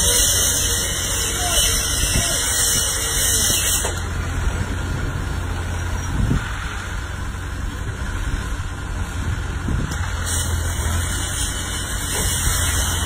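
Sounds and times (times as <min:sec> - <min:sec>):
plate compactor high-pitched shrill: 0:00.0 - 0:04.2, 0:10.2 - 0:13.0
low engine rumble: 0:00.0 - 0:13.0.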